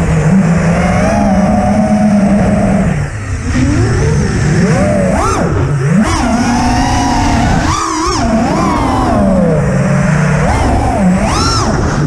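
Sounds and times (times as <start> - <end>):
quadcopter motors whining: 0.0 - 12.0
rushing wind: 0.0 - 12.0.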